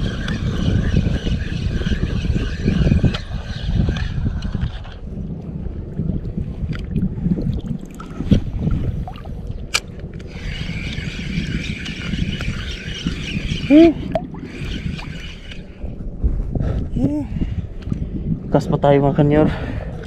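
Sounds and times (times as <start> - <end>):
wind rumbling on microphone: 0.0 - 20.0
sea water sloshing: 6.2 - 9.6.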